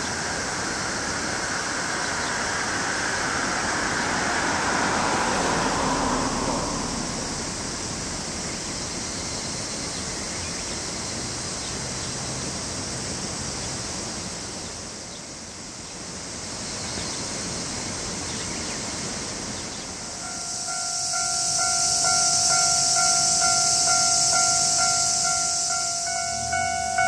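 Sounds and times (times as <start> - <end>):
steady rushing noise: 0.0 - 10.1, 16.2 - 27.0
level crossing warning bell: 19.9 - 27.0.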